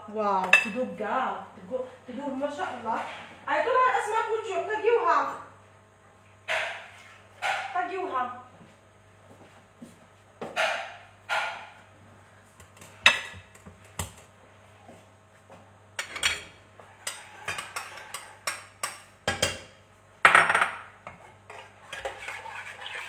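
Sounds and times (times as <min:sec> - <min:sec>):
cookware and utensils clattering: 0:13.0 - 0:13.6, 0:16.0 - 0:19.7, 0:20.3 - 0:23.0.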